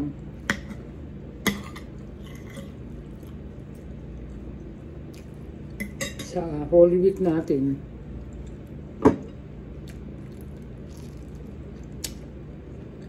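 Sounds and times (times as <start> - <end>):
low steady hum: 0.0 - 13.0
quiet chewing: 1.5 - 5.8, 8.1 - 8.8, 9.8 - 13.0.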